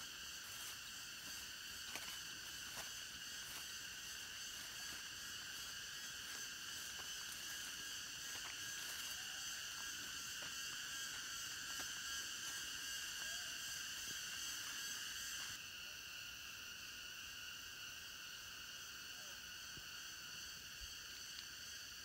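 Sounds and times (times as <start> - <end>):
footsteps on grassy path: 0.0 - 15.6
insect chorus droning: 0.0 - 22.0.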